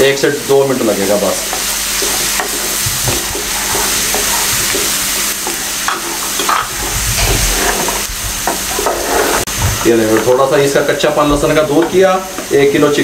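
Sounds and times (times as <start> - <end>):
garlic sizzling in hot oil: 0.0 - 13.0
wooden spatula scraping pan: 1.4 - 10.4.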